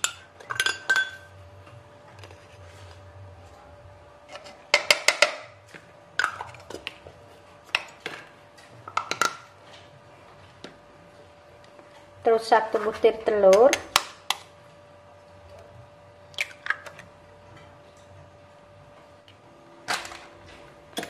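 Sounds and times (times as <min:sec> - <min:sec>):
spoon and containers clinking: 0:00.0 - 0:01.4.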